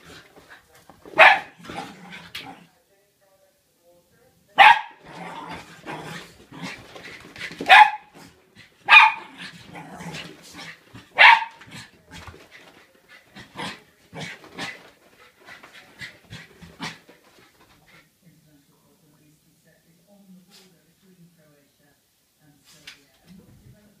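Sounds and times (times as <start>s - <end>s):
dogs scuffling: 0.0s - 2.6s, 5.0s - 18.1s
dogs barking: 1.2s - 1.6s, 4.6s - 5.0s, 7.7s - 8.2s, 8.8s - 9.4s, 11.1s - 11.7s.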